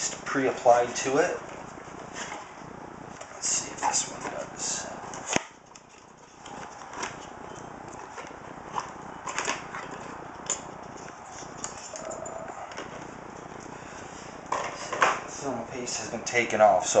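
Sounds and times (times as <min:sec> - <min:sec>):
background hiss: 0:00.0 - 0:05.4
cardboard packaging rustling: 0:00.0 - 0:14.9.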